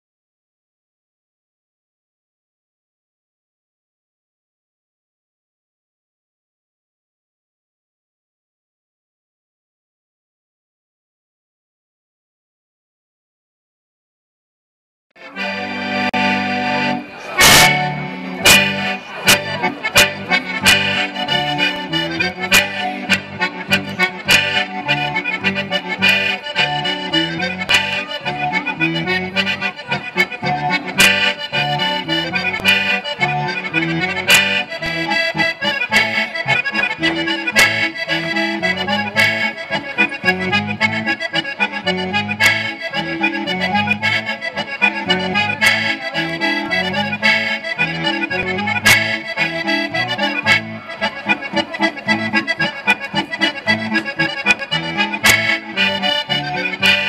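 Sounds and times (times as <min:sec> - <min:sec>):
accordion playing folk dance tune: 0:15.2 - 0:57.0.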